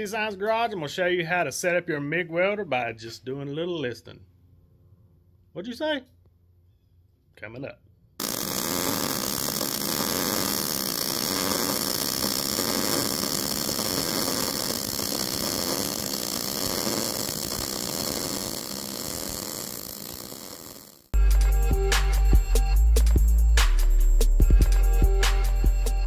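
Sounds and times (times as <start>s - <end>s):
welding arc crackling buzz: 8.2s - 21.2s.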